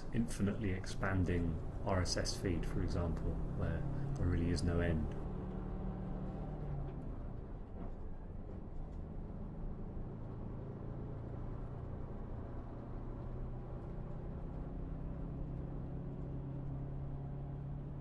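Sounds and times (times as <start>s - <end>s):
vehicle interior rumble: 0.0s - 18.0s.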